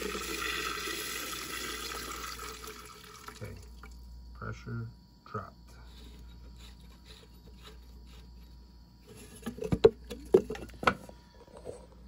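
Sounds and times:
water dripping into metal can: 0.0s - 4.0s.

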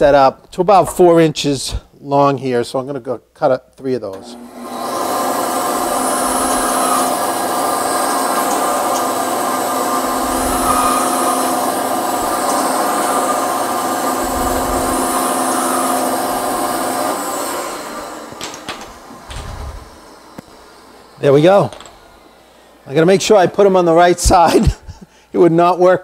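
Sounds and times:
bandsaw cutting wood: 4.1s - 22.3s
saw winding down: 4.2s - 22.4s.

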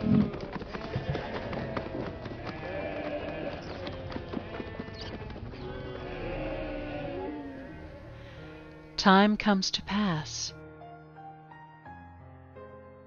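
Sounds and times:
hoofbeats of animals walking: 0.0s - 8.2s
background music: 5.2s - 13.0s.

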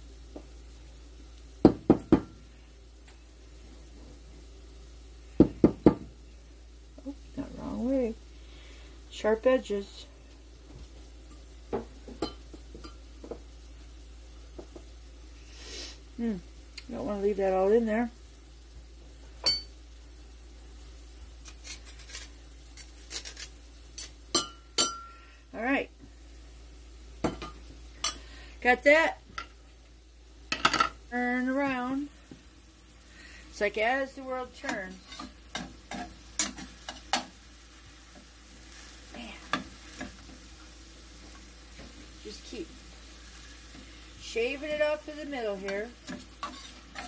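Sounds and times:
meat sizzling: 0.0s - 47.0s
metal clinking on ceramic bowl: 19.4s - 19.7s, 24.3s - 25.2s
knife scraping metal grater: 21.4s - 24.1s, 46.4s - 47.0s
metal utensil scraping a skillet: 21.4s - 25.1s, 34.6s - 37.3s, 45.5s - 47.0s.

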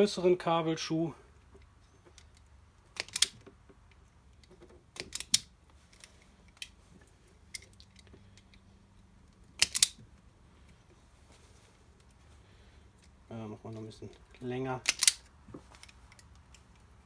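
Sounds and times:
crimping pliers clicking: 1.6s - 3.4s, 5.0s - 6.8s, 9.3s - 10.0s, 14.8s - 16.9s.

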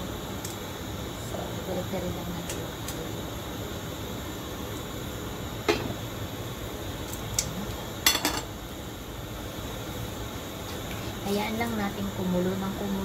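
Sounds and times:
metal clinking on cooking pot: 8.0s - 8.5s.

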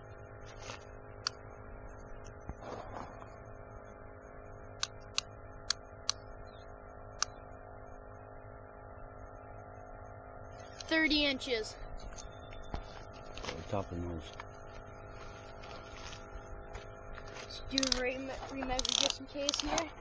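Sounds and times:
steady low hum: 0.0s - 20.0s
sharp clicks: 4.8s - 6.2s, 17.7s - 19.9s.

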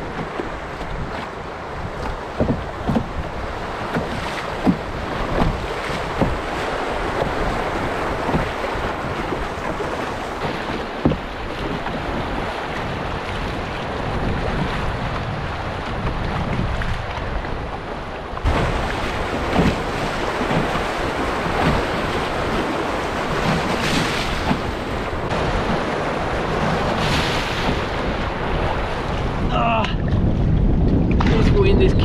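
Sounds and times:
wind buffeting microphone: 0.0s - 32.0s
short knocks: 2.0s - 3.2s, 3.9s - 6.5s, 10.5s - 11.9s.

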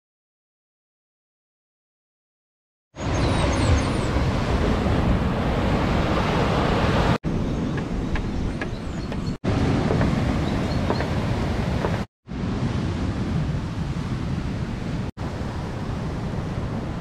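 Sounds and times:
wind rumbling on microphone: 3.0s - 17.0s.

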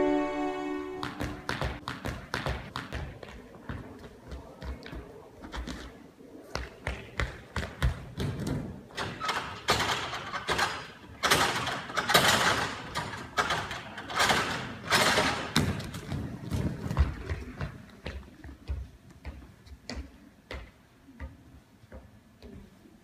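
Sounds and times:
hands and feet on wooden bars: 1.0s - 23.0s.

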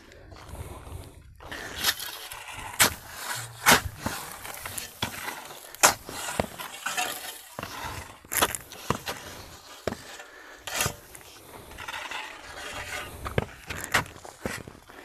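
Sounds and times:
shovel chopping into hard earth: 1.8s - 12.0s.

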